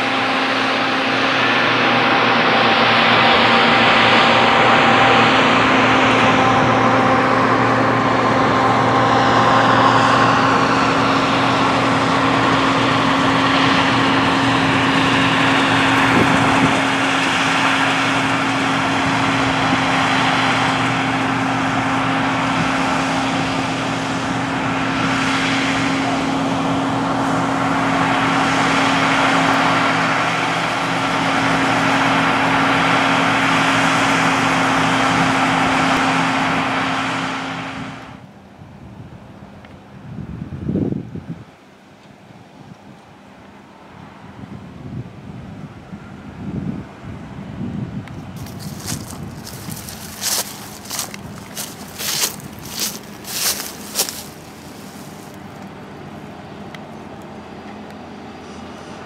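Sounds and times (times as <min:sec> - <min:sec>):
rushing machinery noise: 0:00.0 - 0:38.2, 0:48.4 - 0:56.8
engine drone: 0:00.0 - 0:59.0.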